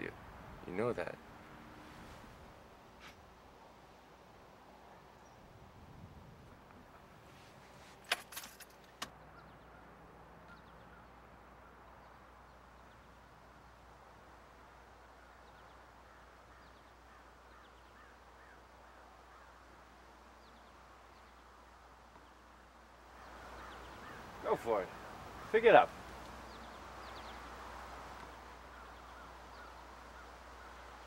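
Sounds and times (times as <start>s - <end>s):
faint bird chirps: 9.2s - 13.2s, 15.1s - 19.6s.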